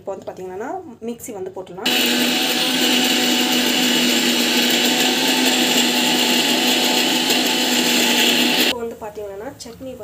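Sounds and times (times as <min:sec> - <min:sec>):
mixer grinder motor whirring: 0:01.9 - 0:08.7.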